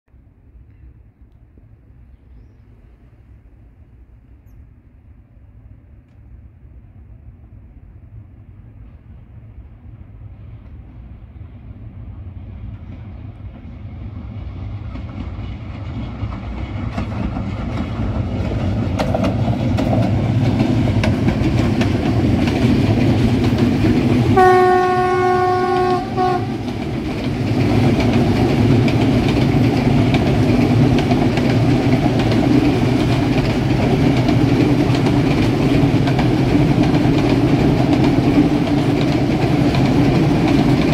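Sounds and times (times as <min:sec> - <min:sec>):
freight train rumble: 0:00.1 - 0:40.9
train wheel clatter: 0:12.6 - 0:40.9
locomotive horn blast: 0:24.3 - 0:26.7.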